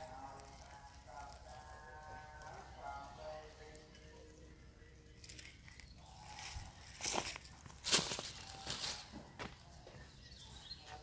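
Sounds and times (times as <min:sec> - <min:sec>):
rustling crunches: 0:05.2 - 0:09.6.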